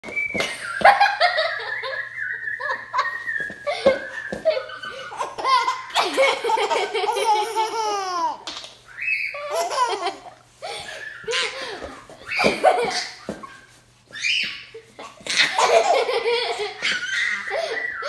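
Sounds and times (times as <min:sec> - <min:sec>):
baby laughing and squealing: 0:04.7 - 0:18.0.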